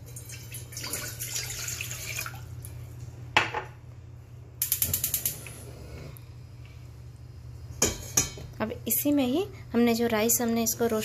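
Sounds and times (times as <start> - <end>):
water pouring into metal saucepan: 0.0 - 2.5.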